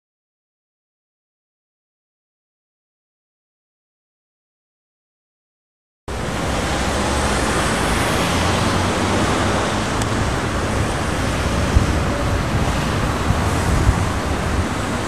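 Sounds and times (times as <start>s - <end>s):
traffic rumble and hiss: 6.1s - 15.0s.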